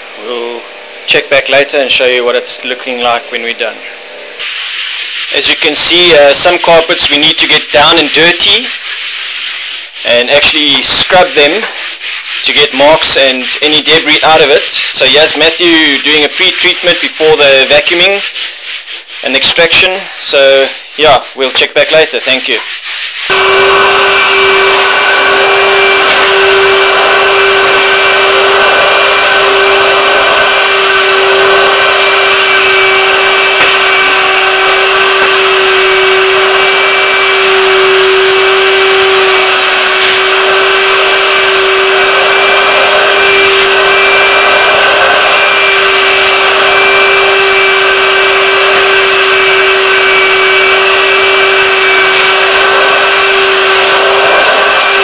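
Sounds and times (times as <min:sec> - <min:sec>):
vacuum machine whining: 0:00.0 - 0:08.7, 0:23.3 - 0:55.0.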